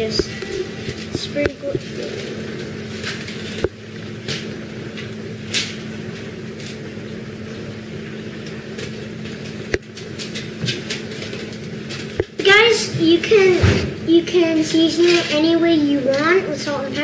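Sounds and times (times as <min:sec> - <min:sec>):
aluminium foil crinkling: 0:00.0 - 0:07.0, 0:08.4 - 0:12.4
steady low hum: 0:00.0 - 0:17.0.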